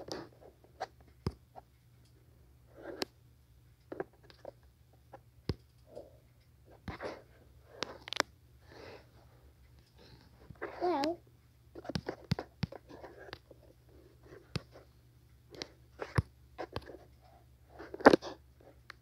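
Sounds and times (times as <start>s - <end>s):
steady low hum: 0.0s - 19.0s
fingers tapping a tablet: 11.8s - 13.6s, 14.3s - 14.8s.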